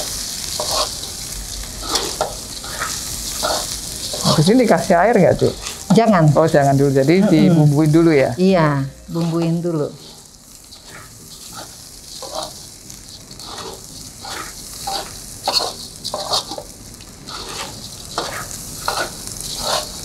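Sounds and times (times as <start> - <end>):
rice sizzling in hot oil: 0.0 - 20.0
scraping against pan: 0.6 - 1.0, 10.0 - 16.7, 17.3 - 20.0.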